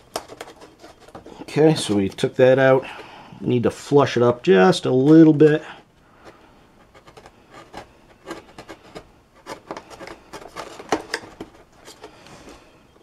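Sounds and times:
hobby knife cutting foam: 0:06.9 - 0:11.1.

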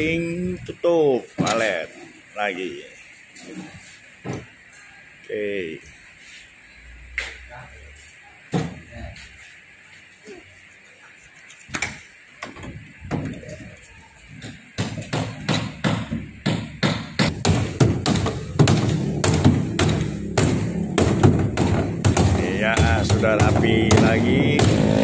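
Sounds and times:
hammer nailing wood: 0:14.4 - 0:25.0.

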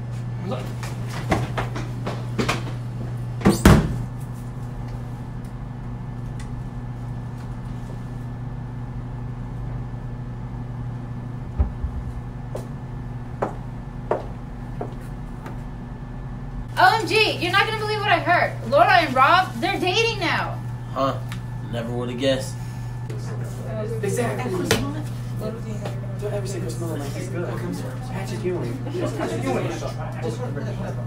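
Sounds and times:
low room hum: 0:00.0 - 0:31.0
sharp knock: 0:11.6 - 0:12.2.

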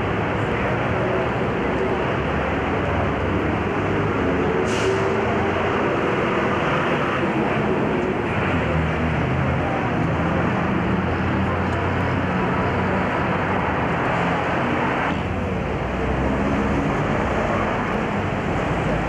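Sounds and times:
city street traffic: 0:00.0 - 0:19.0.

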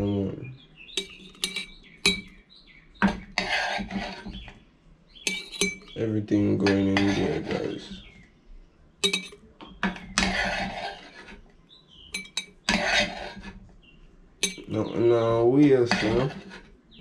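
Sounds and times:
clinks against glass jar: 0:01.0 - 0:02.4, 0:05.3 - 0:06.0, 0:09.0 - 0:09.5, 0:12.1 - 0:12.6, 0:14.4 - 0:14.8
short scraping sounds: 0:10.2 - 0:11.4, 0:12.7 - 0:13.6.

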